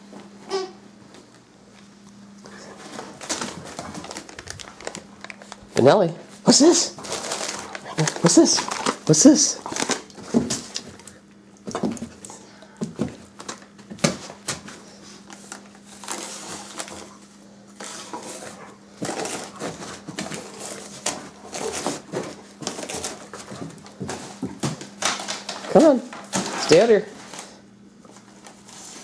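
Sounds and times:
dog tearing wrapping paper: 2.9 - 5.9, 6.5 - 12.0, 15.3 - 17.2, 17.8 - 27.6.

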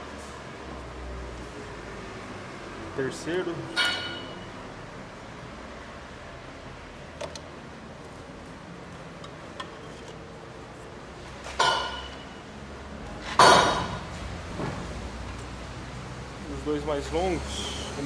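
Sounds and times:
metal pipe clanking: 3.7 - 4.5, 11.6 - 12.4.

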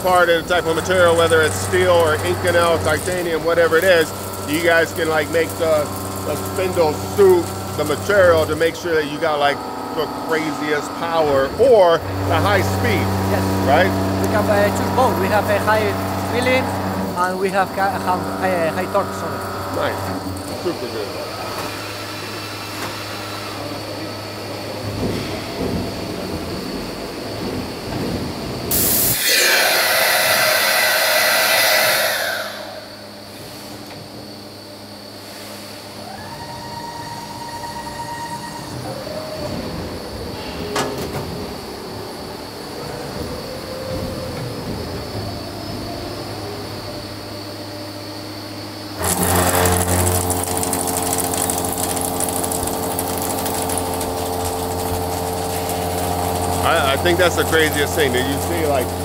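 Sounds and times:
metal cutting with high whine: 0.0 - 25.7, 28.7 - 33.6, 46.4 - 59.0
low machine rumble: 0.0 - 59.0
steady machine hum: 0.0 - 59.0
cutter cutting steel with hiss: 28.7 - 33.1, 49.0 - 59.0.

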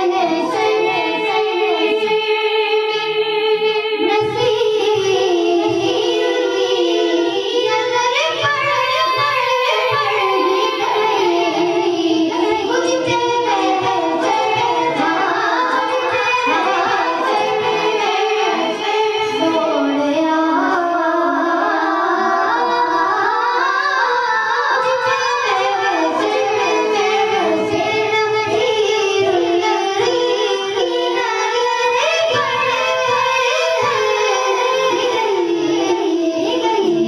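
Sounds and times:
boys singing into microphones: 0.0 - 37.0.

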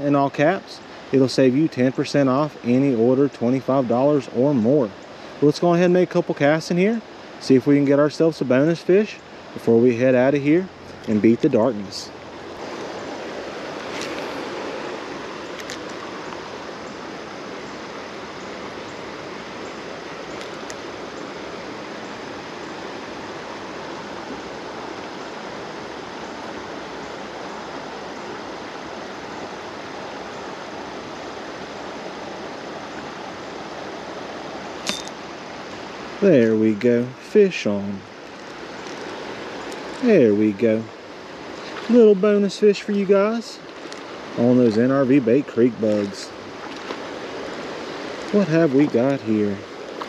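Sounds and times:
creek water flowing: 0.0 - 50.0.

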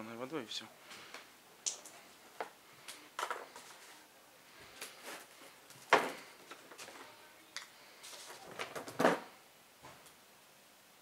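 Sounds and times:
plastic bottles knocking and clicking: 3.2 - 3.7, 8.4 - 9.3.

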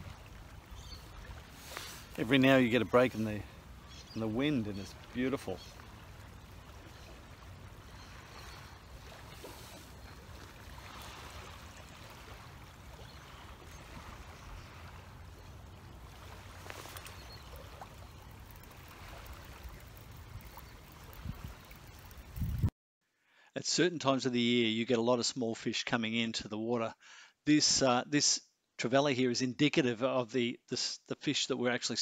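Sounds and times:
small waves lapping: 0.0 - 22.7
faint hiss: 1.4 - 5.7
wind buffeting microphone: 3.6 - 22.7.

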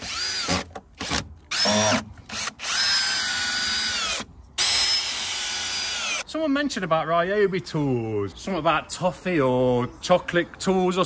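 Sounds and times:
cordless drill driving screws: 0.0 - 6.2.

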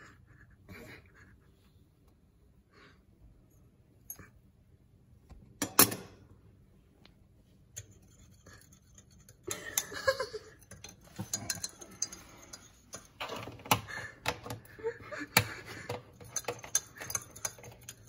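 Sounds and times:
teaspoon clinking in ceramic mug: 10.6 - 13.1.

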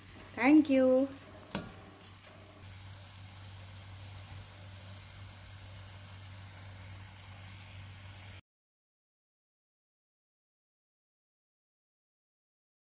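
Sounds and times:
faint hiss: 0.0 - 8.4.

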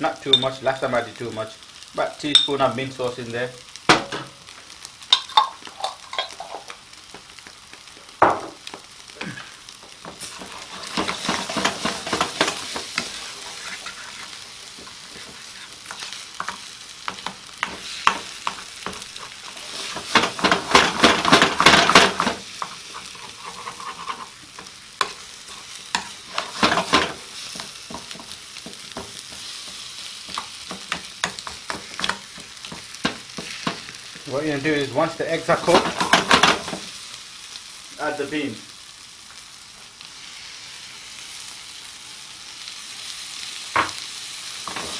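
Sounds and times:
food sizzling in a frying pan: 0.0 - 44.9
metal spoon scraping a pan: 5.2 - 6.7, 10.2 - 34.0.

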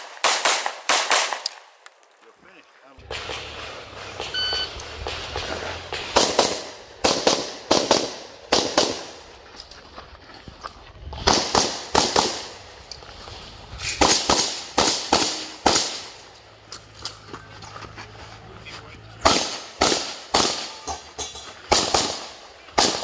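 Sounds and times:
shot timer beep: 4.3 - 4.8.

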